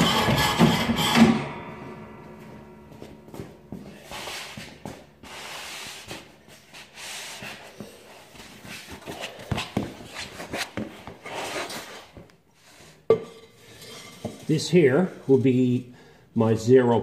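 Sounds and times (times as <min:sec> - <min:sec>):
rubbing and scraping: 0:03.9 - 0:14.7.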